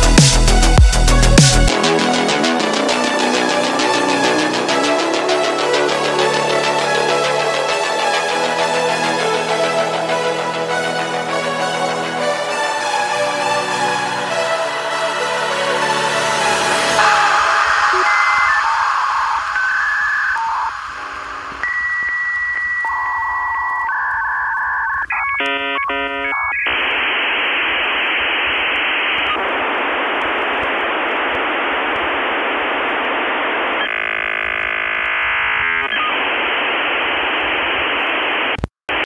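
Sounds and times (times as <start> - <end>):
static hiss: 15.9 - 39.0
high telephone beep: 17.0 - 26.7.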